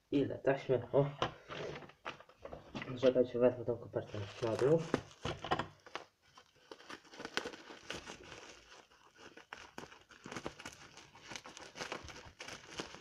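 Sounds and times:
bubble wrap crinkling: 4.0s - 13.0s.

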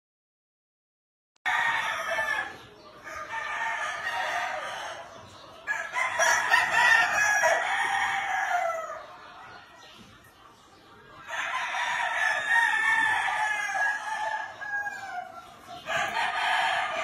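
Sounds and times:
roosters crowing: 1.5s - 9.9s, 11.2s - 17.0s.

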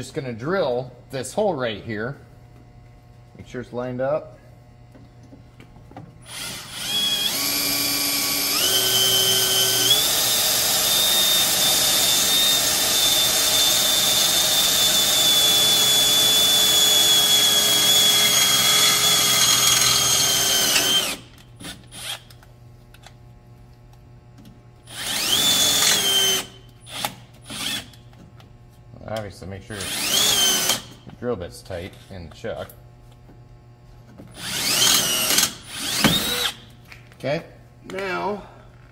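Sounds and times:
power drill whining: 6.2s - 22.3s, 24.9s - 28.0s, 29.8s - 30.9s, 34.3s - 36.7s.

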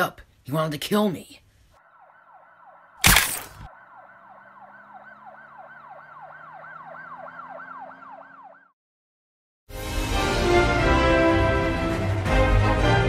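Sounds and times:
siren warbling: 1.8s - 8.8s.

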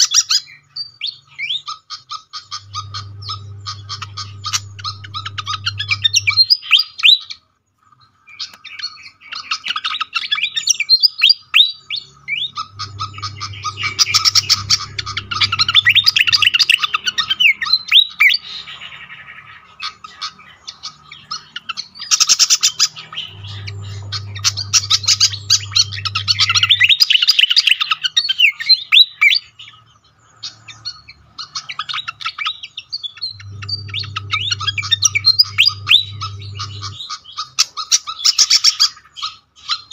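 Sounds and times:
bird chirping rapidly: 0.9s - 7.2s, 9.5s - 28.1s, 30.9s - 38.7s
low steady hum: 2.4s - 6.7s, 12.1s - 18.0s, 22.8s - 27.3s, 33.2s - 37.2s.

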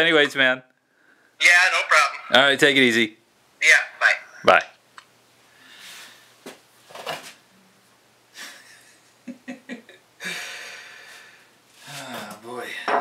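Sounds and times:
man chuckling: 8.4s - 10.4s.

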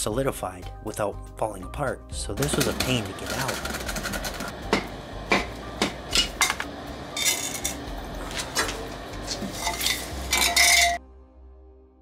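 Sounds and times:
metal clanks and scrapes: 2.4s - 11.0s
ringing metal scrape: 9.3s - 11.0s.

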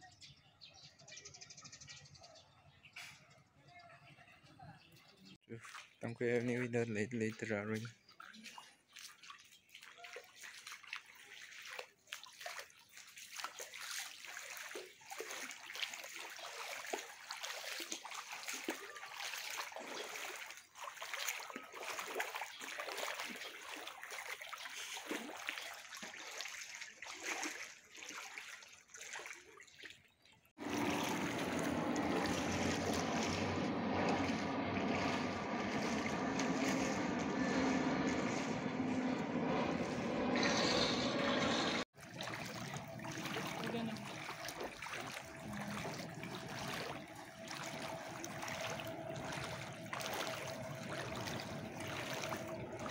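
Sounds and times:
water sloshing and splashing: 5.4s - 52.9s
steady drone with low hum: 30.6s - 41.8s, 45.0s - 52.9s.

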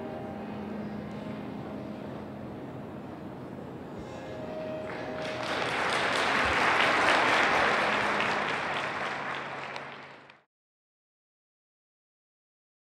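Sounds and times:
audience applauding: 4.8s - 10.4s.

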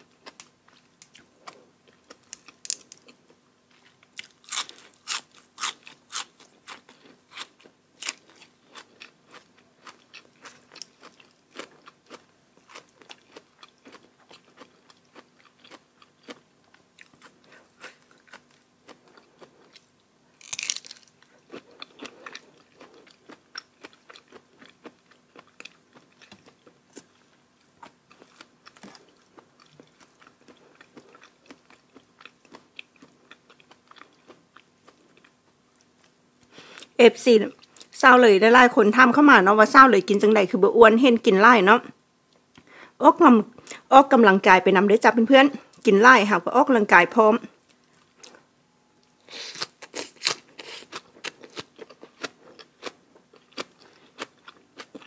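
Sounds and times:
chewing and crunching food: 0.0s - 38.0s, 47.5s - 55.0s.

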